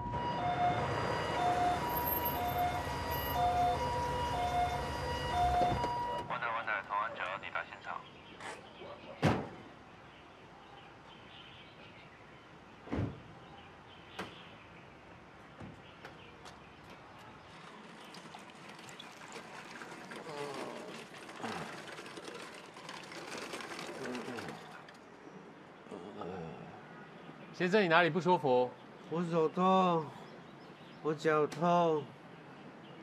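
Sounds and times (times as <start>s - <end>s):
thud: 12.9s - 13.2s
trolley rattling over paving: 17.5s - 25.0s.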